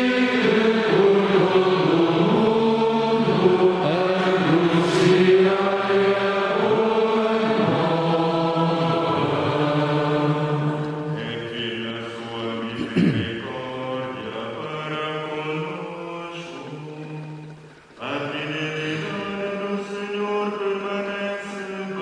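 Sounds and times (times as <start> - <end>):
man chanting: 11.2 - 17.4.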